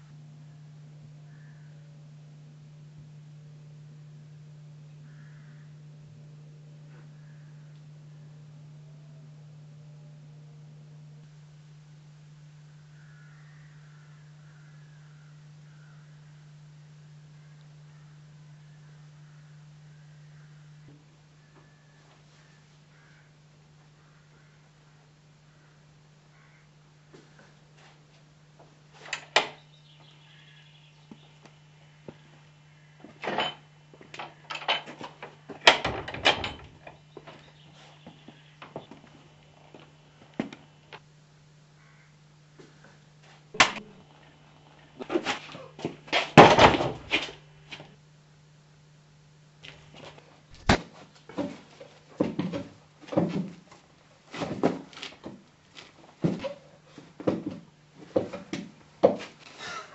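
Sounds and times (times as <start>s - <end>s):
low hum: 0.0s - 51.3s
door slamming shut: 35.6s - 36.8s.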